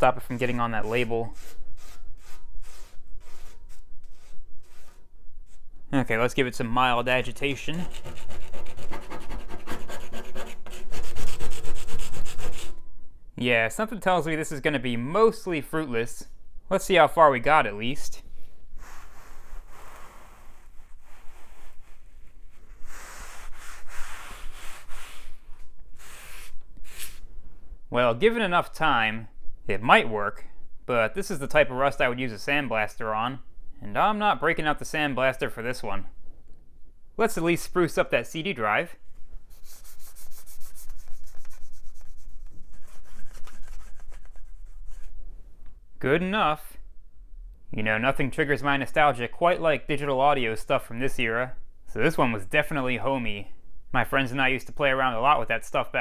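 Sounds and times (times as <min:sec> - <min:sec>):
paper towel wiping metal: 0:18.8 - 0:27.2, 0:39.5 - 0:45.2.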